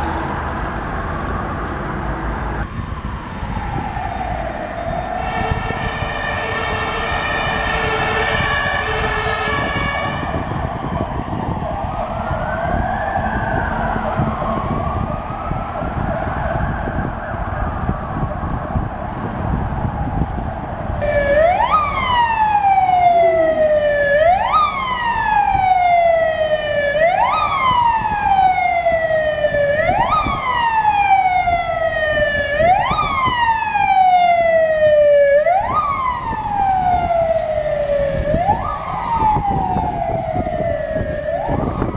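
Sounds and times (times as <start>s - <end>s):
fire engine siren sweeping: 0.0s - 41.9s
traffic noise: 0.0s - 41.9s
multi-tone horn: 5.2s - 10.4s.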